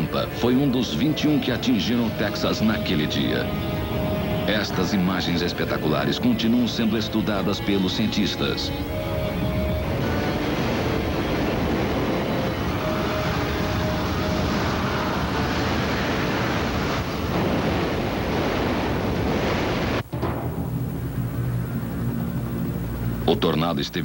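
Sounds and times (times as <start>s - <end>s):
strong wind roaring on microphone: 0.0s - 23.5s.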